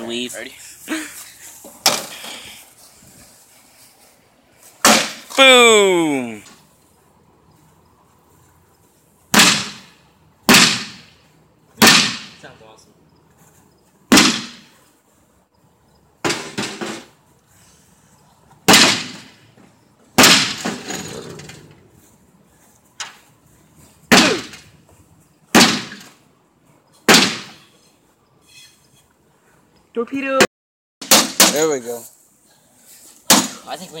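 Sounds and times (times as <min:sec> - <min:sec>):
bat whacking sheet metal: 0:04.8 - 0:05.4, 0:09.3 - 0:09.9, 0:10.5 - 0:11.2, 0:11.8 - 0:12.4, 0:14.1 - 0:14.8, 0:18.7 - 0:19.4, 0:20.2 - 0:21.0, 0:24.1 - 0:24.7, 0:25.5 - 0:26.1, 0:27.1 - 0:27.7, 0:31.0 - 0:31.6.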